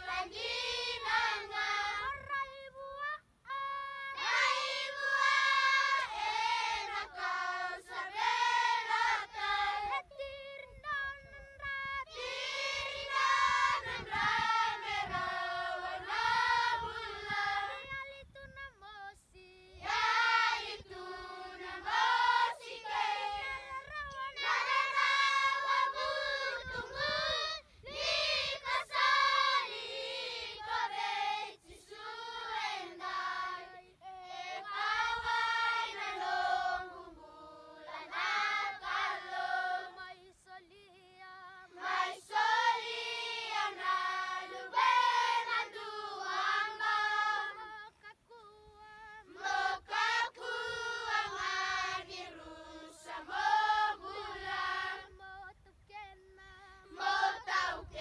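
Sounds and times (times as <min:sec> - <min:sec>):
children's choir singing: 0:00.0 - 0:02.3, 0:04.0 - 0:10.0, 0:12.2 - 0:18.0, 0:19.8 - 0:40.6, 0:41.6 - 0:47.8, 0:49.2 - 0:55.5, 0:56.9 - 0:58.0.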